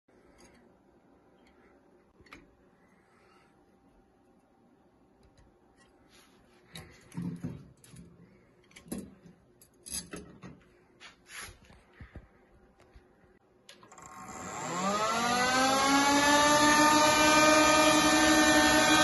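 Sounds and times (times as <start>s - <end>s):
fans whining as they spin up: 13.7s - 19.0s.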